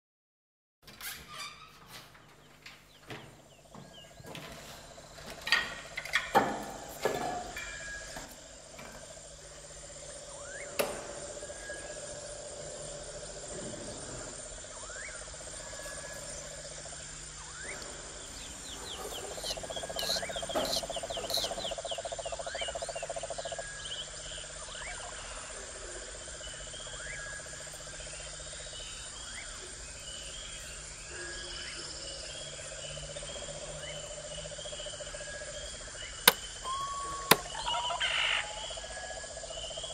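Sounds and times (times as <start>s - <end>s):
insects chirring: 1.2s - 39.9s
loud trilling call: 17.4s - 22.0s, 36.3s - 39.3s.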